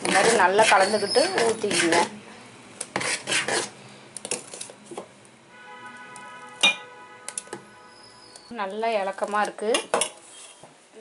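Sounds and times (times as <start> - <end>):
steel ladle clinking on bowls: 6.6 - 7.6.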